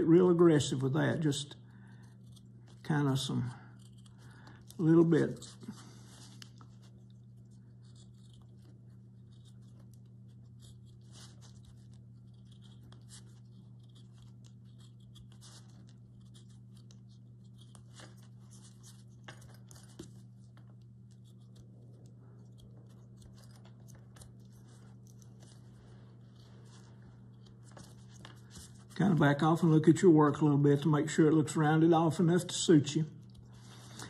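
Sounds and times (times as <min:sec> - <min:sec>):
steady low hum: 0:00.0 - 0:34.0
knife scraping wood: 0:03.7 - 0:06.8, 0:07.8 - 0:20.2.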